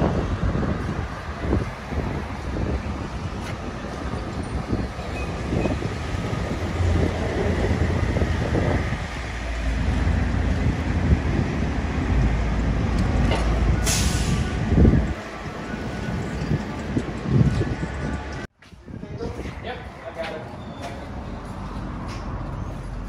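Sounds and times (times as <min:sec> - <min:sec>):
air brake hiss: 0:13.8 - 0:14.6.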